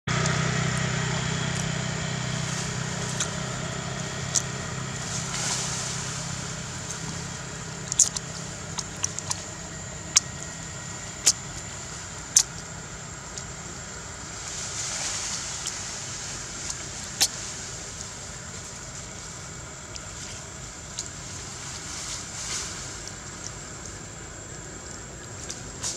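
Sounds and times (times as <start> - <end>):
vehicle engine hum: 0.0 - 25.9.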